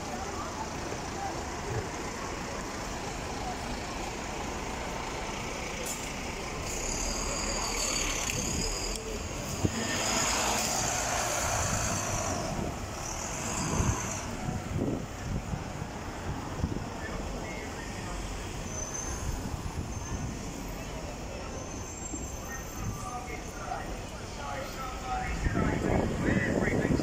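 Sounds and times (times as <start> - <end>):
buses passing: 0.0 - 27.0
busy street traffic: 0.0 - 27.0
high-pitched bus brake squeal: 5.8 - 14.6, 18.6 - 23.8.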